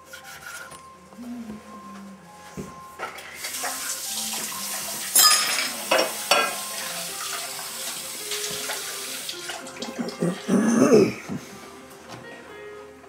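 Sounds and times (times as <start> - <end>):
water running in sink: 3.0 - 11.4
dishes clinking: 5.0 - 7.8.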